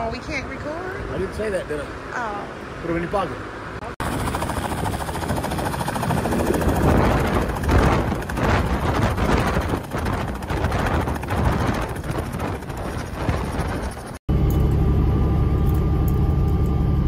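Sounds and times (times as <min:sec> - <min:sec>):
helicopter rotor beating: 0:02.9 - 0:17.0
helicopter engine running: 0:03.9 - 0:17.0.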